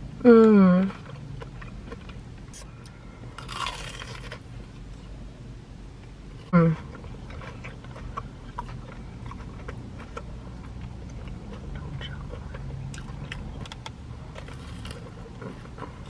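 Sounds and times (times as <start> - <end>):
low steady hum: 0.0 - 16.0
biting into food: 3.4 - 4.4
chewing with wet mouth clicks: 7.2 - 16.0.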